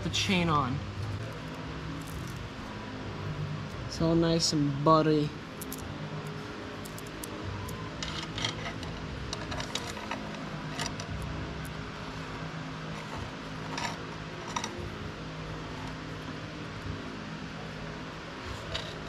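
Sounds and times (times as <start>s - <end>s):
steady low hum: 0.0s - 19.0s
roller chain clinking and rattling: 8.0s - 11.3s, 13.0s - 14.9s.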